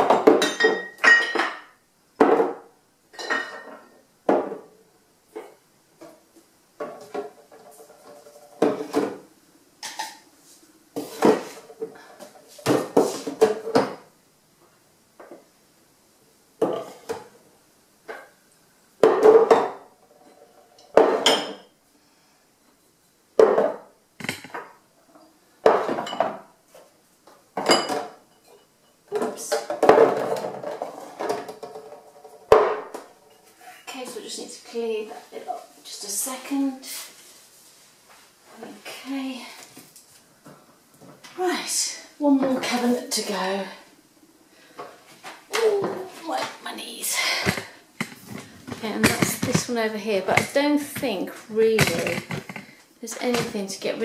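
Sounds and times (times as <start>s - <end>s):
bottles clinking: 0.1s - 1.7s.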